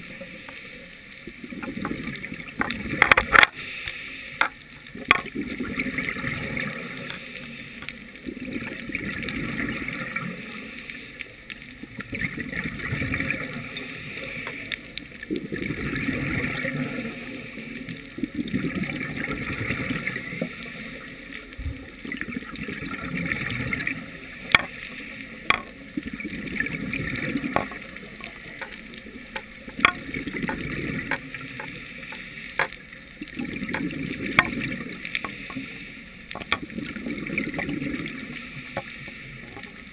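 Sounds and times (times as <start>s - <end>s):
bubbles gurgling: 1.2s - 3.6s, 4.8s - 7.2s, 8.1s - 10.7s, 11.7s - 39.9s.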